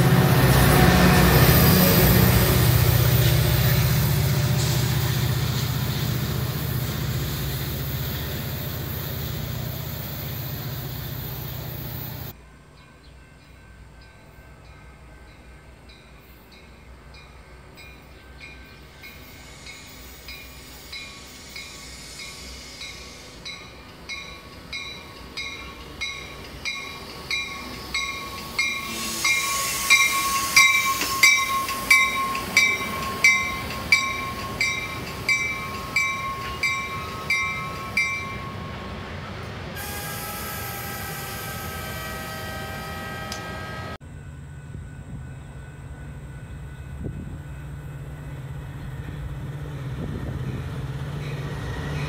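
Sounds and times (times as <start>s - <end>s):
train brake squeal: 0.8s - 12.3s, 18.5s - 38.9s, 39.8s - 44.0s
train bell ringing: 1.1s - 39.2s, 40.5s - 52.0s.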